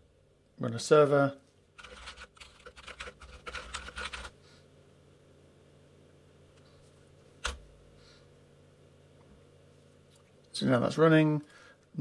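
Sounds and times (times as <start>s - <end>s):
computer keyboard typing: 1.8s - 4.4s.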